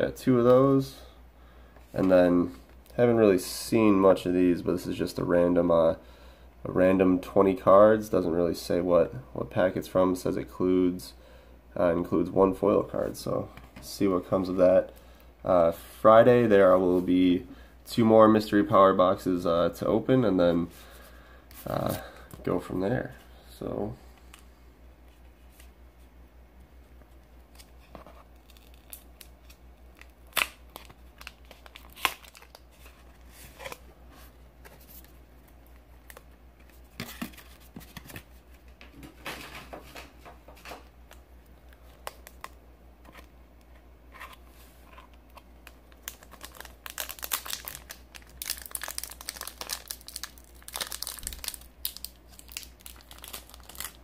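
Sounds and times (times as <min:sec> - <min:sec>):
foil pack crinkling and tearing: 0:28.4 - 0:33.8, 0:45.6 - 0:54.0.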